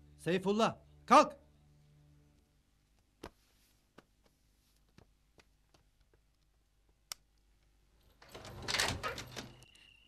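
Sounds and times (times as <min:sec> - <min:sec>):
wooden door unlatched and opened: 0:08.1 - 0:09.7.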